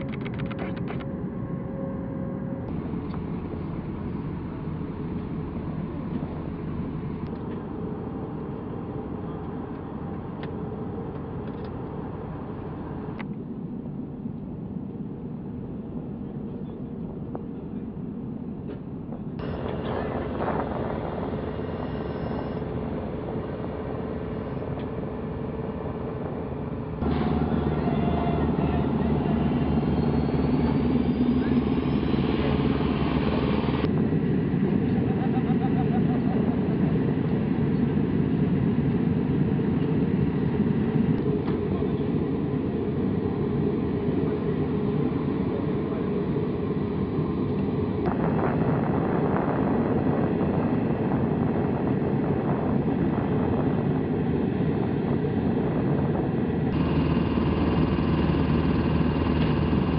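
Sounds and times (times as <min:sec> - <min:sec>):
ground equipment engine drone: 0:00.0 - 0:59.9.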